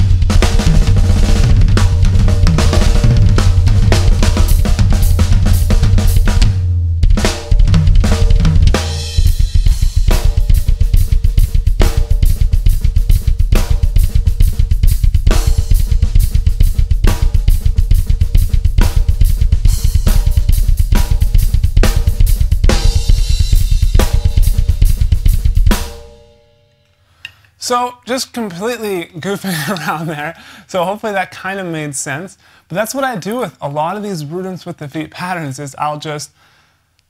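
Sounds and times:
fast double bass drum: 0.0s - 26.0s
drum kit groove: 0.0s - 26.4s, 27.2s - 34.4s.

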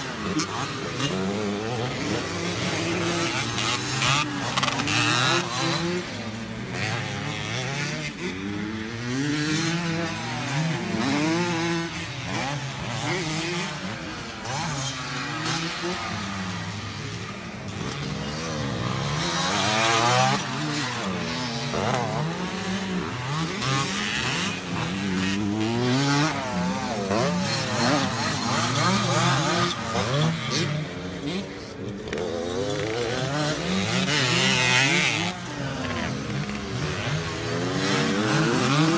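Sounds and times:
dirt bikes revving: 0.0s - 38.9s.

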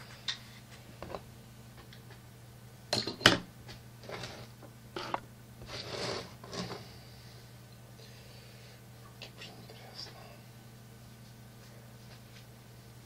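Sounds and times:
rustling and shuffling: 10.7s - 13.0s.

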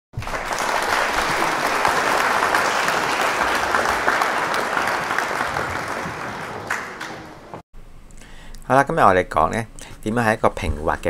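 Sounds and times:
crowd applause: 0.2s - 7.6s.

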